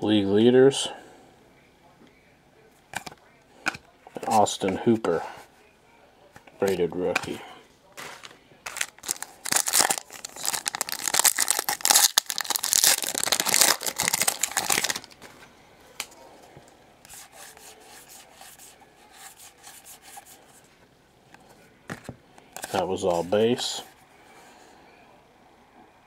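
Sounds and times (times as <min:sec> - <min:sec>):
cards being leafed through: 0:08.0 - 0:15.4
foil wrapper tearing and crinkling: 0:08.1 - 0:15.2.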